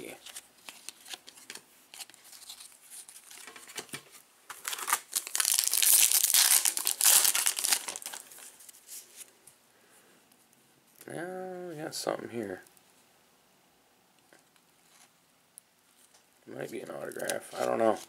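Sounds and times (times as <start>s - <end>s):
foil wrapper crinkling: 4.5s - 8.6s.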